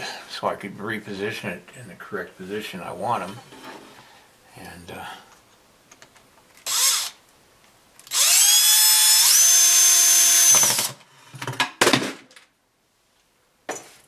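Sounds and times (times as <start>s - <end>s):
cordless drill whining: 6.6s - 7.2s, 8.0s - 11.0s.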